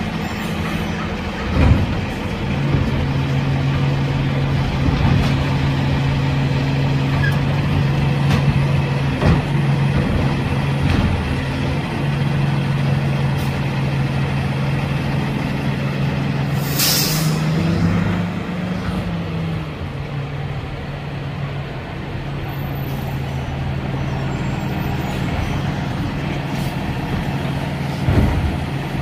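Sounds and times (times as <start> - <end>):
diesel engine humming: 0.0 - 29.0
air brakes hissing: 16.5 - 17.6.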